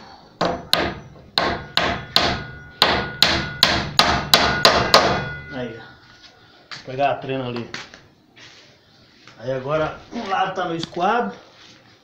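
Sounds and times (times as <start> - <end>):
hammer driving nails into wood: 0.4 - 5.2.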